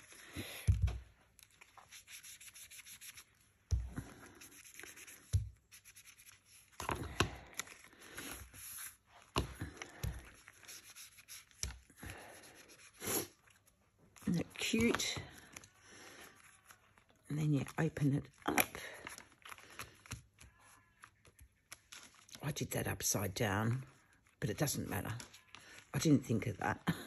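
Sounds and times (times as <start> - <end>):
foam tool scuffing paper: 1.4 - 6.9, 10.2 - 13.4.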